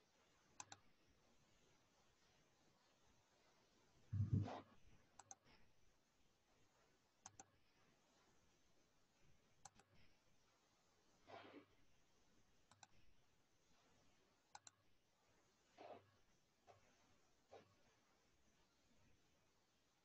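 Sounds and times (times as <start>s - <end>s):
computer mouse clicks: 0.6s - 0.9s, 5.2s - 5.5s, 7.2s - 7.6s, 9.6s - 10.0s, 12.7s - 13.1s, 14.5s - 14.8s.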